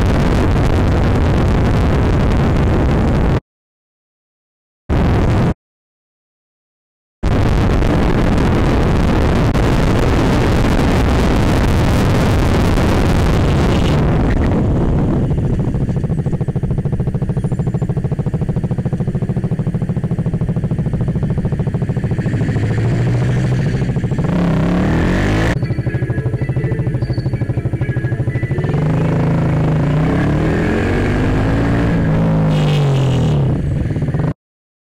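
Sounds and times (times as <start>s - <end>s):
wind rushing over camera: 0.0s - 3.4s, 7.2s - 25.6s
motorcycle engine revving: 7.3s - 34.4s.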